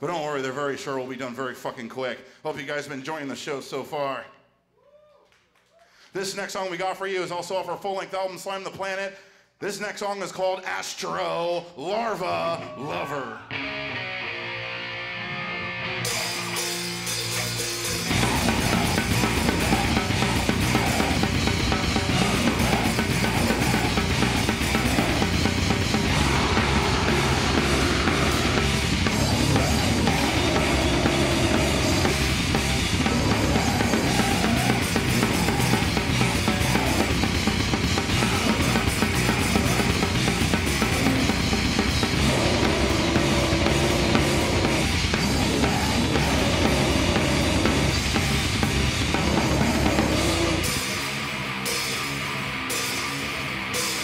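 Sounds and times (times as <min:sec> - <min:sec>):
distorted electric guitars: 0:13.4 - 0:54.0
metal band playing live: 0:13.5 - 0:54.0
heavy bass drum: 0:18.0 - 0:51.2.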